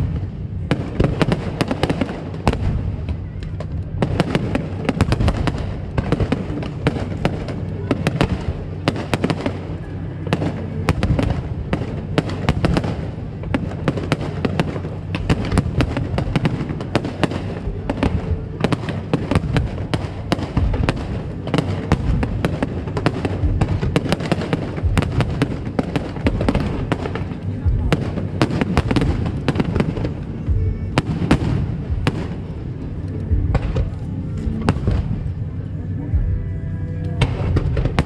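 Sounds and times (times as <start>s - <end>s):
fireworks bangs and crackles: 0.0s - 38.0s
low rumble of booms: 19.3s - 36.5s.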